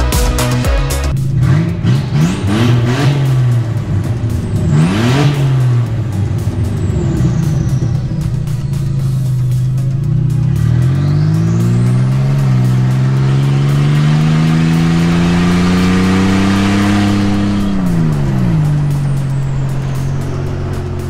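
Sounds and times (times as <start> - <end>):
car engine accelerating: 0.0 - 21.0.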